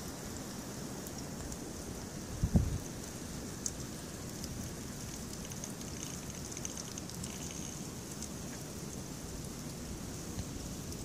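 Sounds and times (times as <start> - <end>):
ticking of falling precipitation: 0.0 - 11.0
wind rumble on microphone: 2.2 - 3.0.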